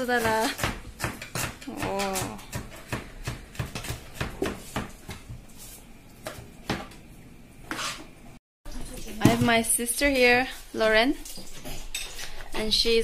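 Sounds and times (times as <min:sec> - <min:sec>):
knife chopping on plastic board: 0:00.2 - 0:05.3.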